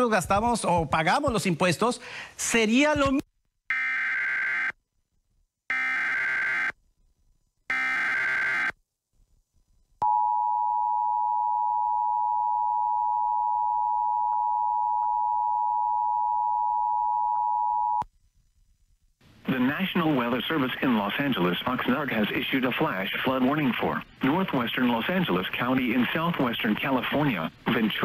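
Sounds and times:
warbling digital buzz bursts: 7.7s - 8.8s.

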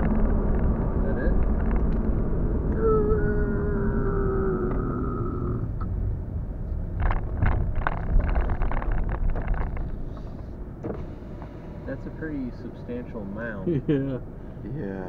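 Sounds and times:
clicks and rattles: 0.0s - 2.2s, 7.0s - 10.4s
falling whine: 0.0s - 6.1s
car road rumble: 0.0s - 15.0s.

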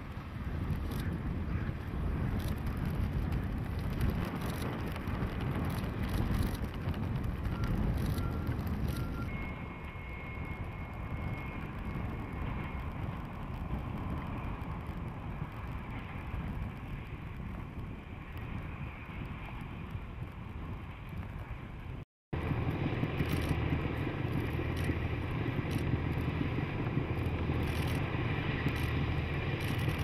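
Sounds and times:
snowplow engine rumbling: 0.0s - 30.0s.

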